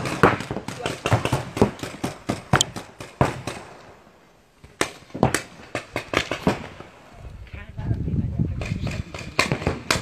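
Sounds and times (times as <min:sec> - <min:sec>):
paintball markers firing pops: 0:00.0 - 0:03.6, 0:04.6 - 0:06.6.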